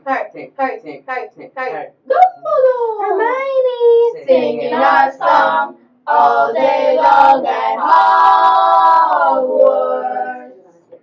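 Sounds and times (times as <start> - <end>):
voices singing together: 4.2 - 10.6.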